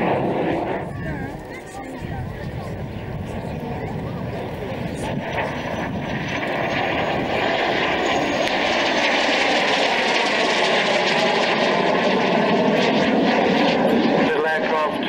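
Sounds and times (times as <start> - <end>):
jet aircraft flying past: 0.0 - 15.0.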